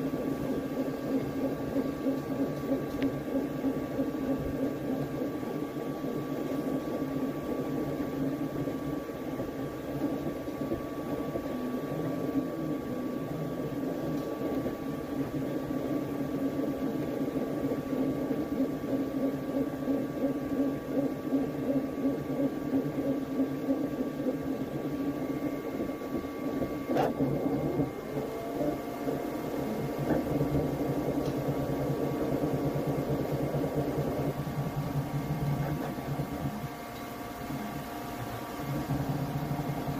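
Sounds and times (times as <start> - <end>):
fan whirring: 0.0 - 39.9
stepper motors humming: 0.0 - 39.9.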